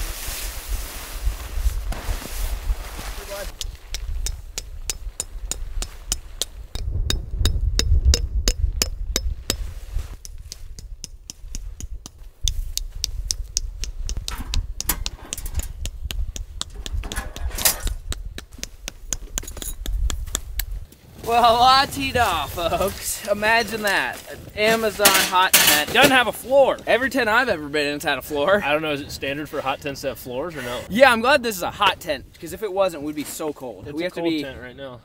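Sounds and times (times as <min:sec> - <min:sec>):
sharp knocks or clicks: 0:03.5 - 0:20.7
low rumble: 0:06.4 - 0:10.1.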